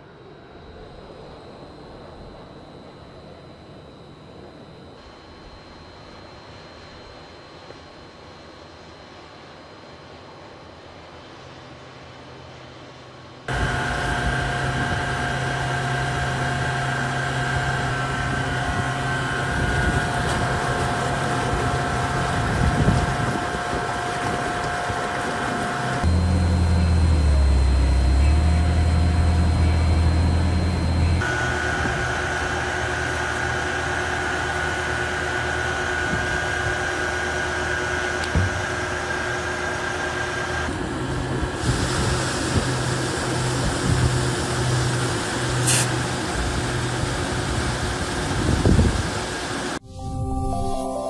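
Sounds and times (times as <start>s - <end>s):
forklift engine running: 13.5s - 49.8s
pumps and motors humming: 13.5s - 49.8s.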